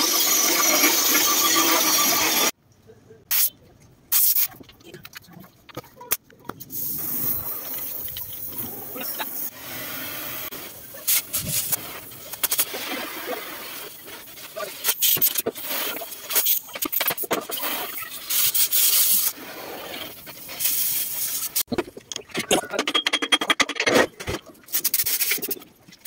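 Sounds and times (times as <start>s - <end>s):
cutting torch hissing: 0.0s - 2.5s, 6.7s - 16.6s.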